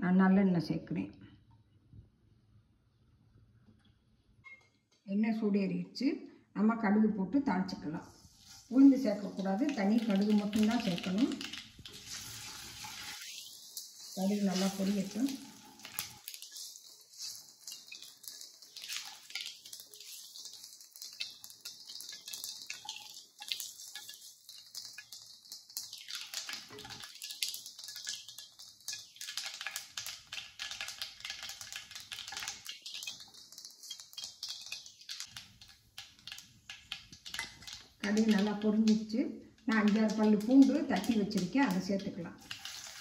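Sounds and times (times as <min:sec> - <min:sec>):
mustard seeds popping in oil: 0:09.0 - 0:43.0.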